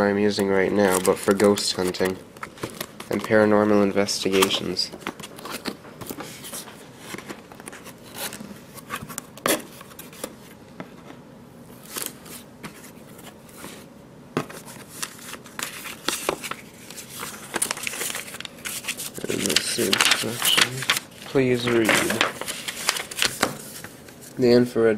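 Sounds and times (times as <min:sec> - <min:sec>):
paper packaging rustling: 0:00.3 - 0:10.6, 0:11.8 - 0:24.5.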